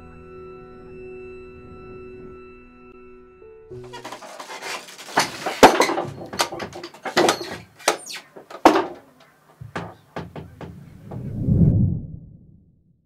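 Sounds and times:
wooden machinery creaking and knocking: 3.8s - 11.3s
low whoosh: 10.9s - 13.0s.

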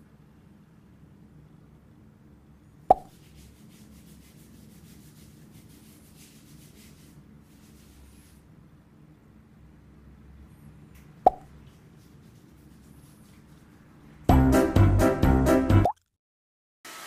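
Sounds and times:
sharp plop: 2.9s - 3.1s, 11.2s - 11.5s
hands scrubbing lather in wet hair: 3.1s - 8.3s.

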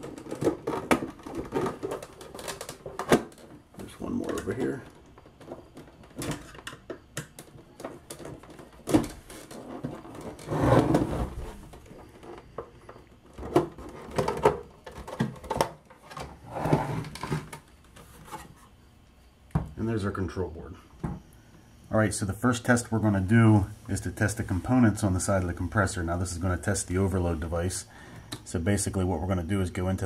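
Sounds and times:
plastic cover clattering: 0.0s - 18.5s
plastic scraping on plastic: 0.0s - 18.7s.

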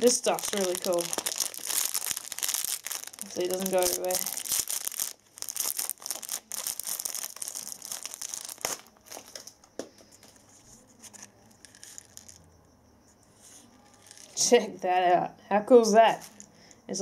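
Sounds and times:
foil wrapper crinkling and tearing: 0.0s - 9.6s, 11.1s - 12.4s, 13.9s - 14.4s.

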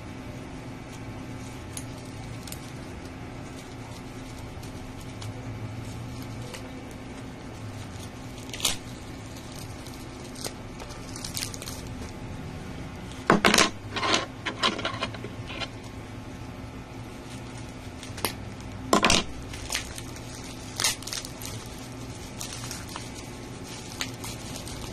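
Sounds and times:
plastic bag crinkling and rustling: 0.8s - 12.3s, 17.0s - 24.9s.

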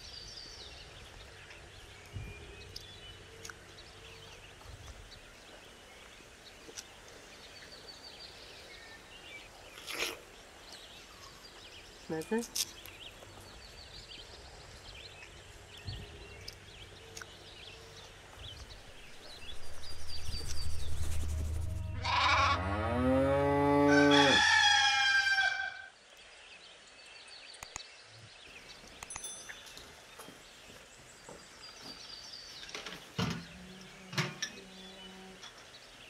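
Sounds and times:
farm animal calls: 21.8s - 25.9s.

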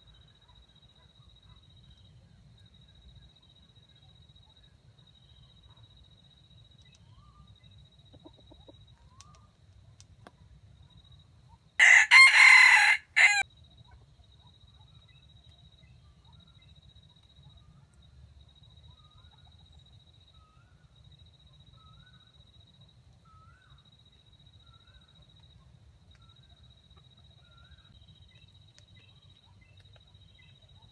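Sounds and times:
rooster crowing: 11.8s - 13.4s.

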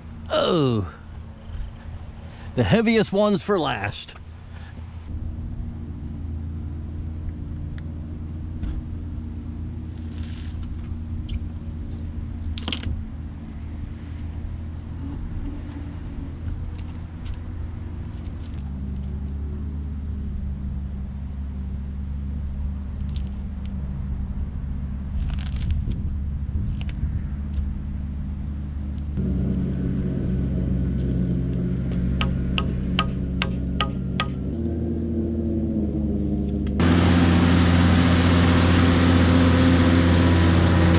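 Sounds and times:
low sustained music chords: 27.7s - 40.9s.

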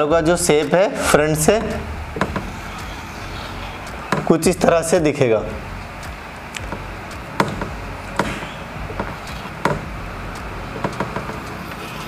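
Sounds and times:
steady low hum: 0.0s - 12.0s
marker tapping on whiteboard: 7.4s - 9.9s, 10.8s - 11.4s.

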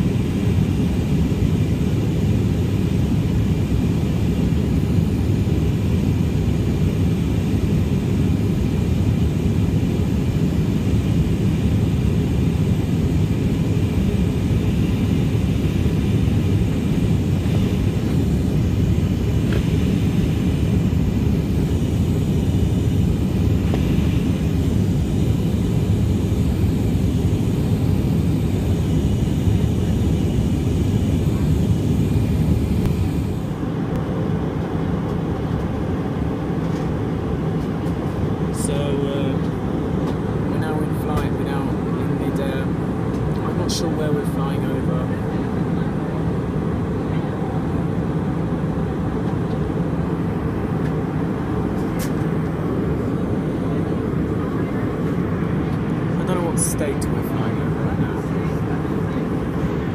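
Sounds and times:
airplane cabin engine roar: 0.0s - 59.9s.

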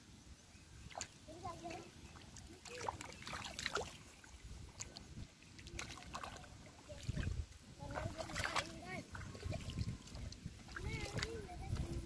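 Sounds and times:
muddy water splashing: 0.8s - 12.0s.

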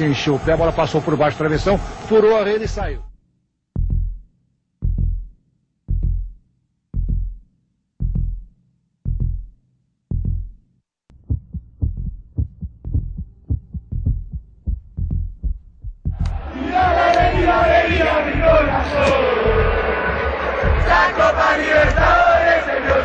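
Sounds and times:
heartbeat thumps: 0.4s - 0.8s, 3.8s - 6.4s, 7.0s - 7.4s, 8.0s - 8.5s, 9.1s - 9.5s, 10.1s - 20.0s, 20.6s - 23.0s.

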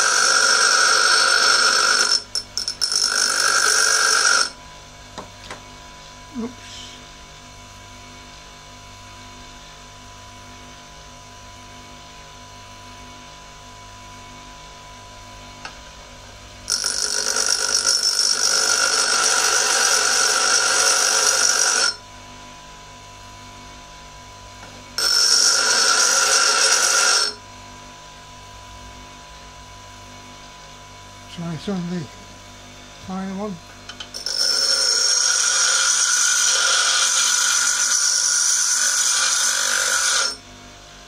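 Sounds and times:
bench grinder motor running: 0.0s - 4.6s, 16.6s - 22.0s, 24.9s - 27.4s, 33.0s - 40.4s
steel grinding screech: 0.0s - 4.6s, 16.7s - 22.0s, 25.0s - 27.4s, 34.1s - 40.4s.

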